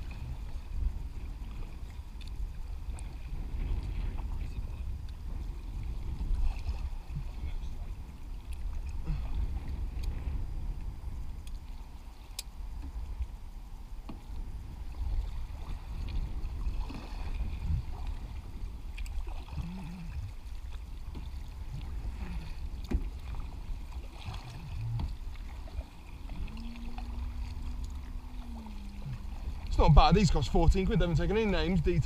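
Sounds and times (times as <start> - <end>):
low rumble: 0.0 - 32.0
paddle splashing in water: 14.0 - 31.8.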